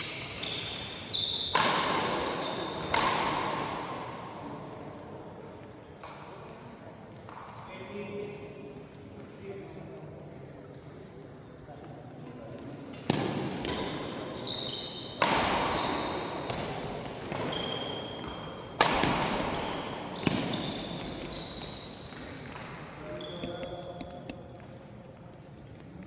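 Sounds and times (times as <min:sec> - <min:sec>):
shoes squeaking on court floor: 0:00.0 - 0:03.0, 0:12.8 - 0:26.0
racket hitting shuttlecock: 0:00.0 - 0:04.2, 0:12.9 - 0:14.3, 0:15.0 - 0:21.4.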